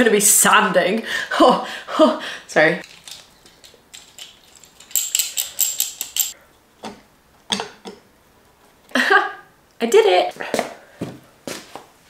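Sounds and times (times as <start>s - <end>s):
small metal parts clinking: 2.8s - 6.4s
metallic clicks: 2.8s - 8.0s.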